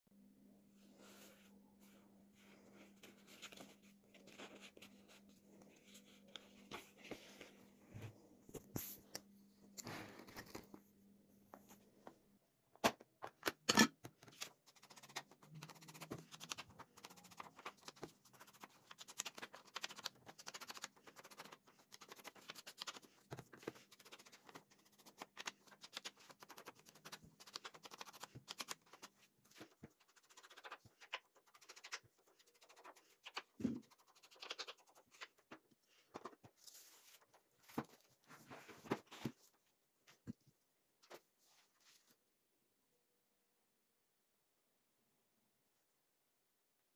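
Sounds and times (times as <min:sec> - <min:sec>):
paper pages rustling: 0:01.1 - 0:09.2, 0:09.8 - 0:10.9, 0:14.1 - 0:40.4.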